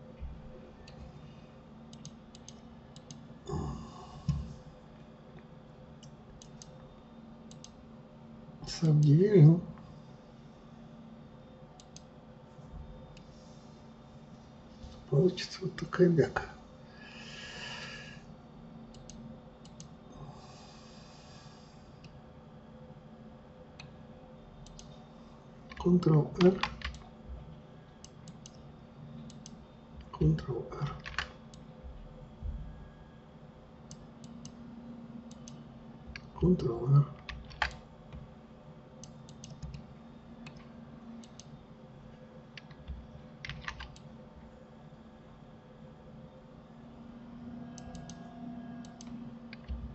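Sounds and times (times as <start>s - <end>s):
faint electrical hum: 0.0s - 49.9s
keyboard and mouse clicks: 1.9s - 3.2s, 7.5s - 7.8s, 11.8s - 12.1s, 24.6s - 24.9s, 25.7s - 27.1s, 29.2s - 29.6s, 30.8s - 31.6s, 35.3s - 36.4s, 37.2s - 38.3s, 39.0s - 39.8s, 40.4s - 41.5s, 42.5s - 44.1s, 47.7s - 48.2s, 48.8s - 49.9s
mouse and keyboard clicks: 42.6s - 44.1s.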